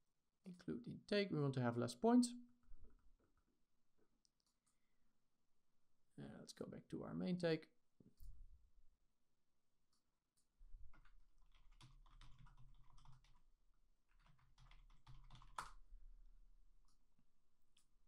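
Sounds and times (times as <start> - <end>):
keyboard typing: 10.9 - 13.4, 14.1 - 15.8.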